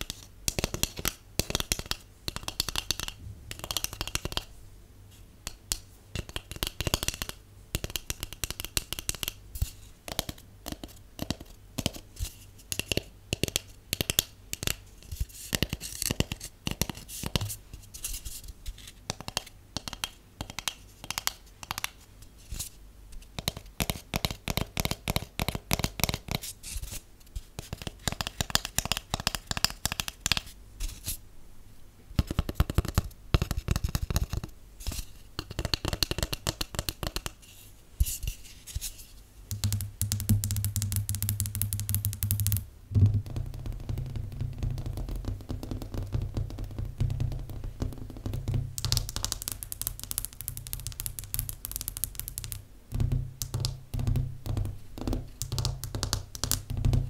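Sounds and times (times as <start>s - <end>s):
fingernails tapping cardboard tube: 0.0s - 4.5s, 5.4s - 12.0s, 12.7s - 14.8s, 19.1s - 22.0s, 23.4s - 26.5s, 27.6s - 30.5s, 32.2s - 37.4s, 39.5s - 57.0s.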